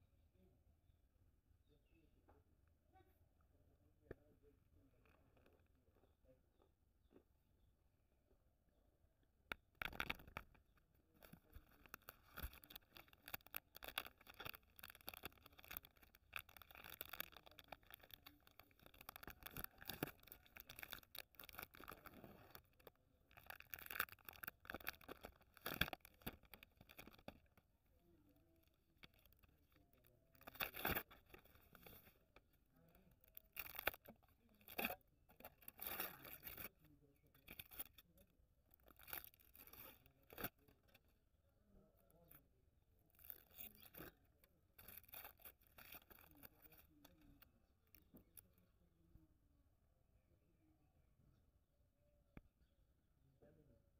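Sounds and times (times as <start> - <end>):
wrapper crinkling and tearing: 11.2 - 27.6, 30.3 - 32.2, 33.3 - 36.7, 44.8 - 46.9.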